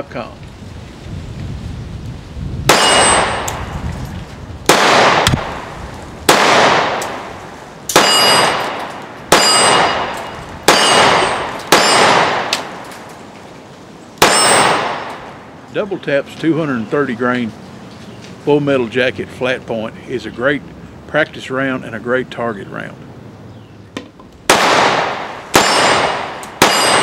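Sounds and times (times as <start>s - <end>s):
pistol shots with ringing tail: 2.7s - 3.7s, 4.7s - 5.7s, 6.3s - 7.3s, 7.9s - 12.8s, 14.2s - 15.3s, 24.5s - 27.0s.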